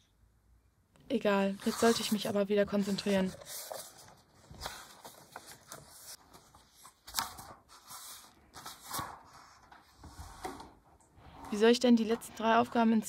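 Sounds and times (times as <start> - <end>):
book pages flipping: 1.6 - 11.6.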